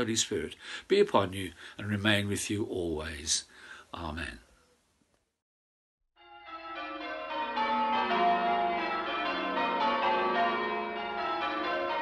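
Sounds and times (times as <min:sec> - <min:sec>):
church bells ringing: 0:06.2 - 0:12.0.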